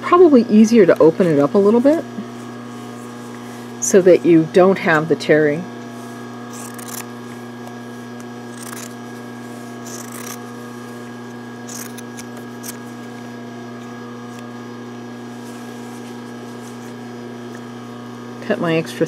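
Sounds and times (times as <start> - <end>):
steady electrical hum: 0.0 - 19.0
scissors cutting thick cloth: 6.5 - 13.1.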